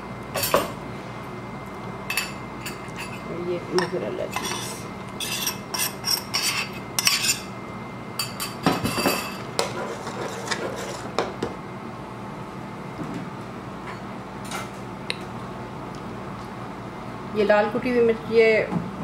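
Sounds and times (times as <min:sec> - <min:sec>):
metal spoon stirring in pot: 0:02.2 - 0:07.5.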